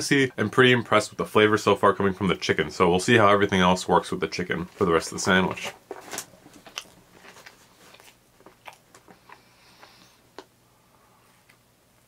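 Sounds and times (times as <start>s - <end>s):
person chewing crispy food: 6.1s - 10.5s.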